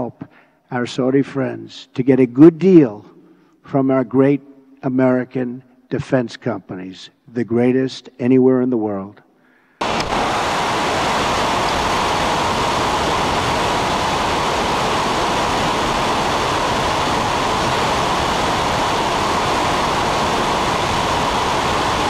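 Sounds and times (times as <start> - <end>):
wind and aircraft noise: 9.8 - 22.0.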